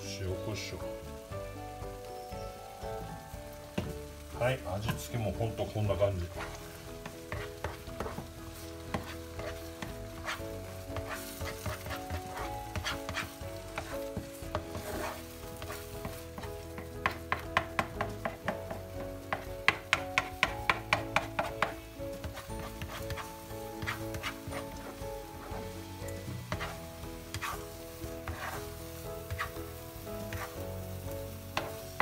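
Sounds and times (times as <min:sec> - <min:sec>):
egg sizzling in frying pan: 0:00.0 - 0:32.0
spatula scraping pan: 0:06.3 - 0:25.9, 0:26.5 - 0:30.7
spatula tapping pan: 0:06.4 - 0:25.8, 0:26.5 - 0:30.6, 0:31.2 - 0:32.0.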